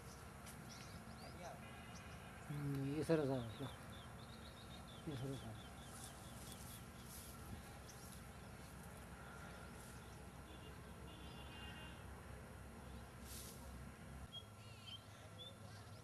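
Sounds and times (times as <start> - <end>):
brief hiss: 13.2 - 13.7
faint bird chirps: 14.3 - 16.0.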